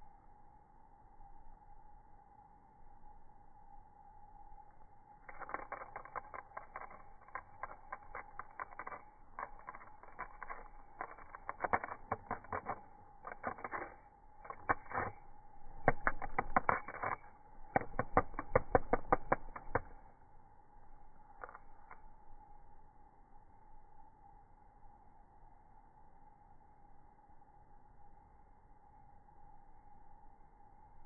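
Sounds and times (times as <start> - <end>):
cicada wings clicking on asphalt: 3.7 - 22.9.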